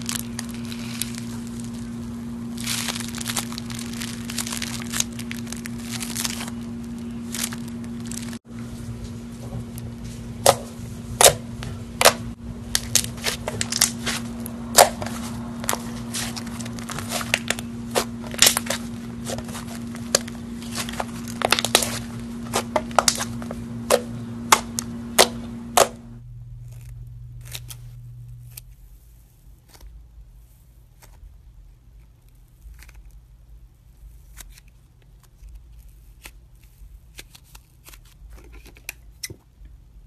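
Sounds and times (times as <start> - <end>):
stress ball squishing: 0.0 - 8.5, 9.3 - 39.6
low hum: 0.0 - 29.3.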